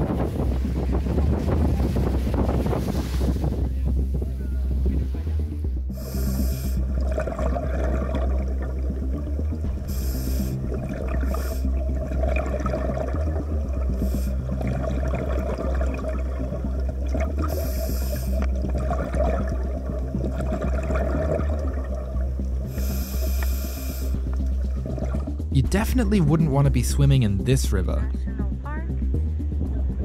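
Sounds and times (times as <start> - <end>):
bubbles gurgling underwater: 5.9 - 25.5
regulator inhale hiss: 6.0 - 6.8, 9.9 - 10.6, 11.2 - 11.7, 14.0 - 14.4, 17.5 - 18.4, 22.7 - 24.2.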